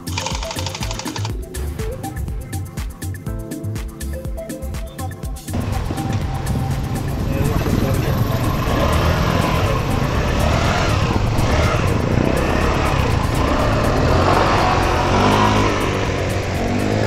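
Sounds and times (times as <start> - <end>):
scooter engine revving: 0.0 - 1.7, 5.5 - 17.0.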